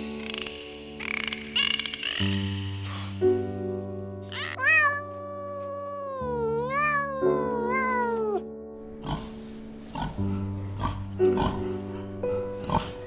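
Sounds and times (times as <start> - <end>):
background music: 0.0 - 13.0
kitten meowing: 4.3 - 8.5.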